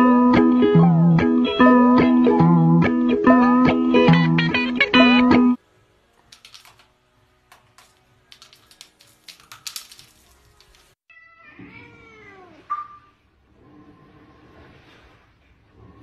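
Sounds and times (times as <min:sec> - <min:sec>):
cat meowing: 0:11.1 - 0:13.1.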